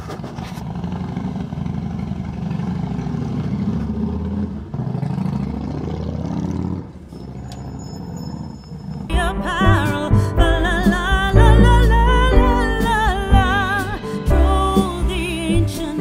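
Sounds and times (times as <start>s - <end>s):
vehicle engine running: 0.1s - 7.1s.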